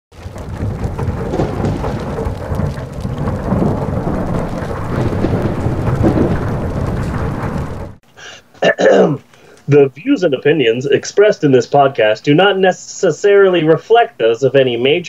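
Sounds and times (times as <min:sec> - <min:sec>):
low rumbling thunder: 0:00.1 - 0:08.0.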